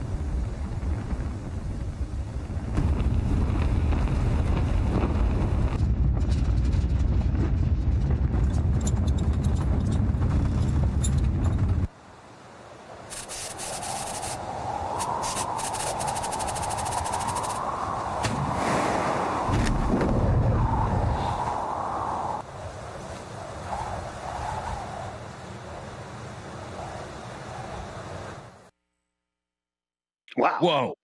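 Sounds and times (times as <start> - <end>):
deep steady rumble: 0.0 - 11.9
hiss: 13.1 - 17.7.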